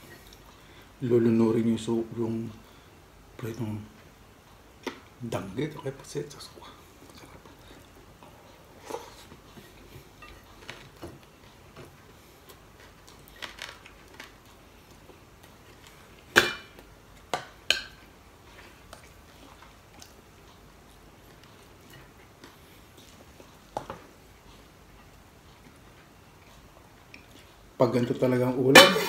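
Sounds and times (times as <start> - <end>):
metal pot lid clanking: 28.8 - 29.0.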